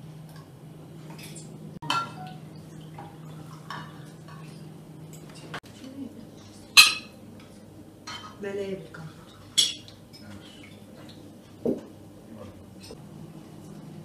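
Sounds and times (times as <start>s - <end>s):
cutlery clinking on plates: 9.5s - 10.4s.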